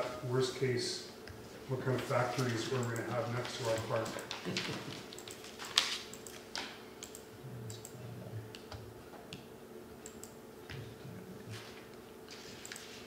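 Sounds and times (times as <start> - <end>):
faint room hum: 0.0 - 13.0.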